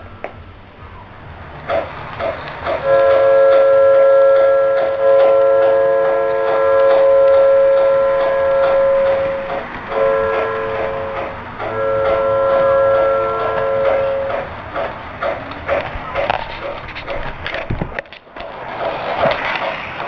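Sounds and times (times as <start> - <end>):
model train wheels ticking: 1.6 - 20.0
multi-chime steam whistle: 2.8 - 14.5.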